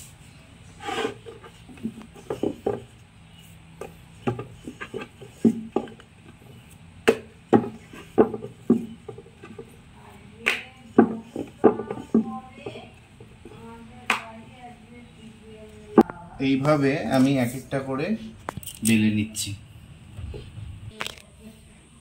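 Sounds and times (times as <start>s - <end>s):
rolling pin rolling dough: 0.6s - 14.0s
rolling pin knocking on wood: 7.0s - 9.7s, 10.5s - 13.4s.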